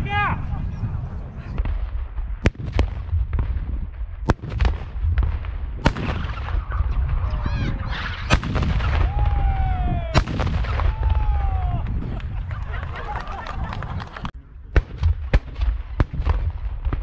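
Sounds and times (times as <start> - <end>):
wind rumble on microphone: 0.0 - 17.0
cannon bangs: 1.6 - 7.3, 8.0 - 11.3.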